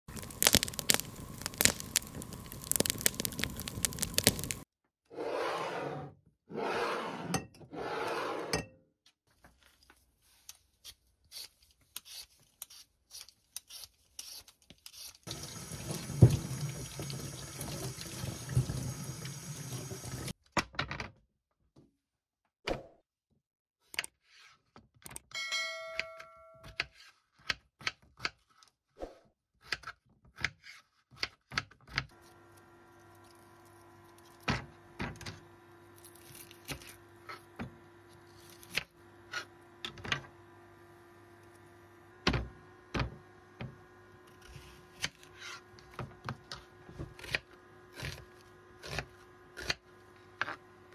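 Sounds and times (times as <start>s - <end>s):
wood fire crackling: 0.1s - 4.6s
water running: 15.3s - 20.3s
brief ringing tone: 25.4s - 26.7s.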